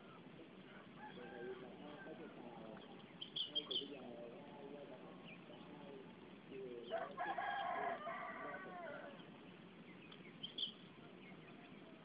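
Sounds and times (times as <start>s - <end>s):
rooster crowing: 0.6s - 2.5s, 6.9s - 9.2s
high bird chirps: 2.7s - 4.1s, 9.1s - 11.9s.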